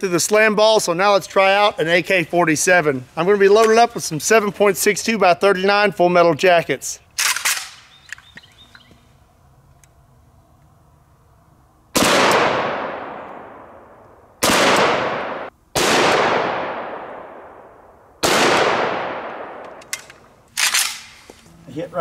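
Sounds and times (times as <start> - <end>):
rifle shots with echo: 12.0 - 19.9, 20.6 - 21.2.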